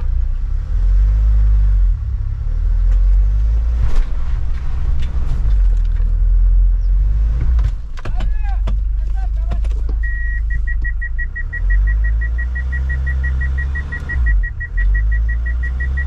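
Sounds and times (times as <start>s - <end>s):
vehicle rumble on dirt track: 0.0s - 16.0s
knocks and rattles: 7.3s - 10.2s.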